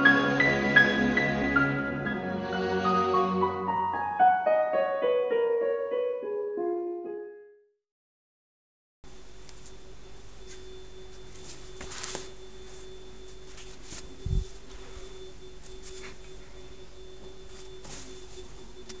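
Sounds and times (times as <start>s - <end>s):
faint electronic hum: 9.1s - 19.0s
soft rustles: 10.4s - 16.7s, 17.3s - 19.0s.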